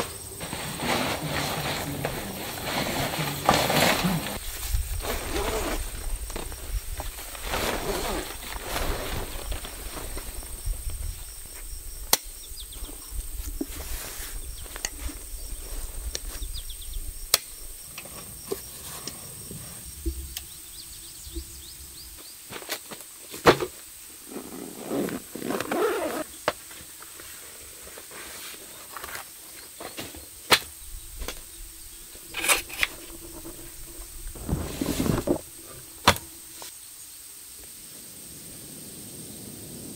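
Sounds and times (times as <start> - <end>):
fabric and bag rustling: 0.4 - 11.0, 24.4 - 29.4, 32.3 - 36.1.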